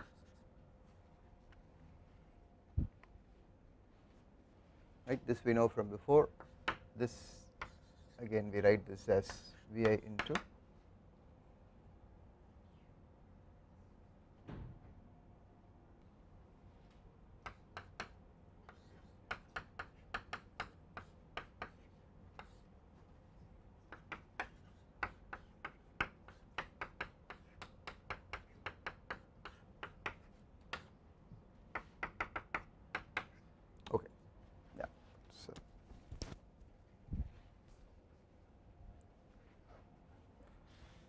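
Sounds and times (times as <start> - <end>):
chalk tapping on chalkboard: 6.4 - 6.8, 7.6 - 8.1, 9.2 - 10.5, 17.4 - 22.6, 23.9 - 30.9, 31.7 - 33.4.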